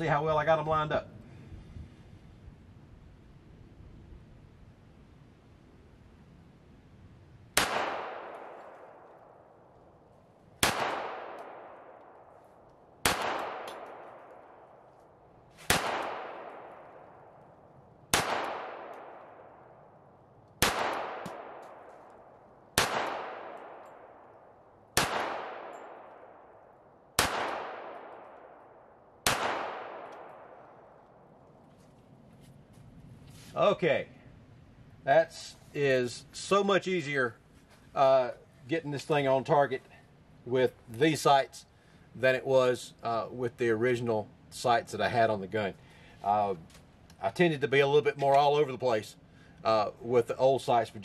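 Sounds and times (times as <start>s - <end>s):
pistol shots echoing: 7.6s - 9.7s, 10.6s - 12.3s, 13.0s - 14.9s, 15.7s - 17.4s, 18.1s - 19.9s, 20.6s - 31.3s.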